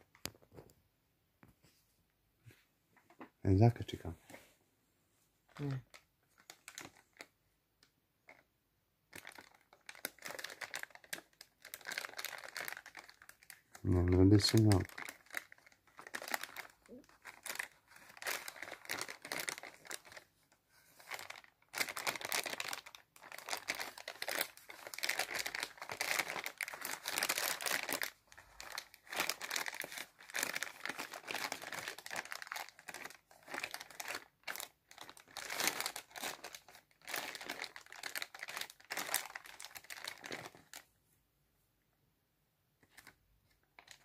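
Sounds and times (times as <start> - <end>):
plastic bags crinkling: 5.6 - 7.3, 9.1 - 40.9, 42.8 - 44.0.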